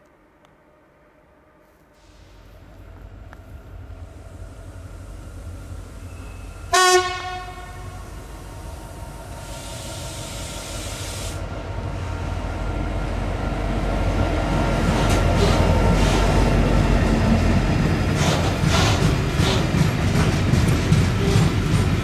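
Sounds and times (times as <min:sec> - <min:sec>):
rumble of train wagons: 0:00.2 - 0:22.0
diesel locomotive engine: 0:02.0 - 0:22.0
locomotive horn blast: 0:06.2 - 0:08.1.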